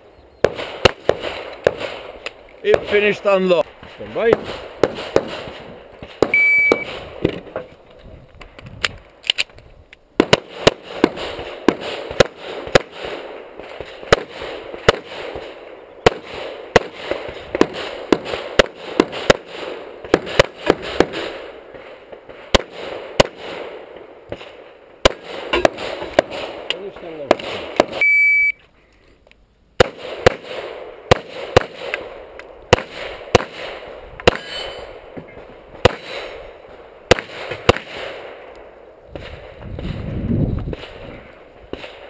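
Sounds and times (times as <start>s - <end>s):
rapid pistol shots: 0.4s - 7.3s, 10.2s - 28.0s, 29.8s - 35.1s, 35.8s - 36.5s, 37.1s - 38.5s
shot timer beep: 6.3s - 6.9s, 28.0s - 28.6s.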